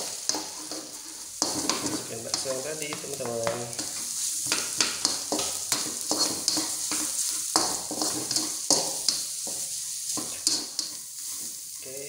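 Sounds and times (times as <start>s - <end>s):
spatula scraping a wok: 0.0s - 11.9s
food sizzling in hot oil: 0.0s - 12.0s.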